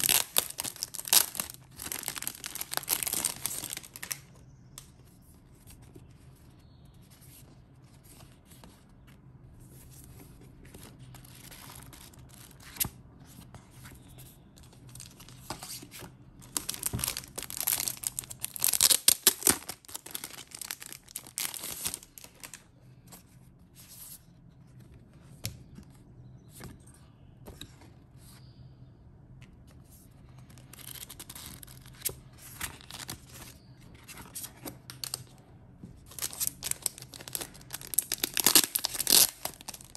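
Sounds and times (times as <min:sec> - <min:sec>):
plastic wrap crinkling and tearing: 0:00.0 - 0:04.2, 0:16.4 - 0:22.6, 0:36.1 - 0:39.9
book pages rustling: 0:07.2 - 0:26.8.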